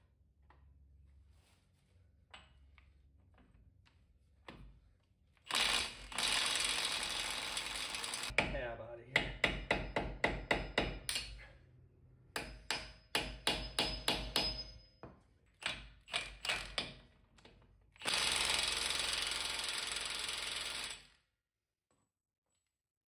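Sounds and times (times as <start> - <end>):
impact wrench running: 5.5 - 8.4, 18.0 - 21.2
hammer striking metal: 12.4 - 14.9.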